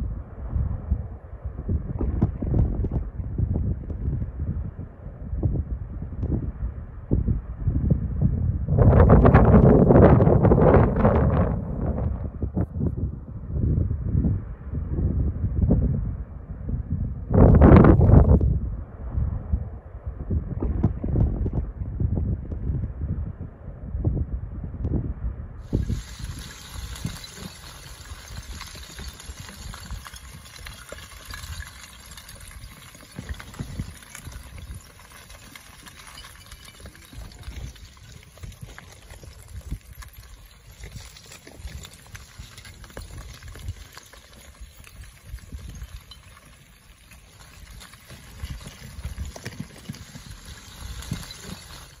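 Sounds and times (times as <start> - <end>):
lava crackling hiss with pops: 25.6 - 52.0.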